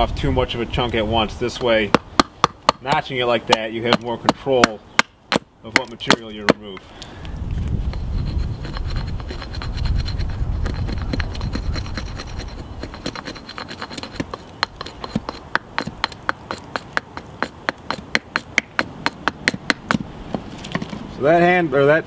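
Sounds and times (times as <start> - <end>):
hatchet chopping wood: 1.6 - 6.9, 8.8 - 20.9.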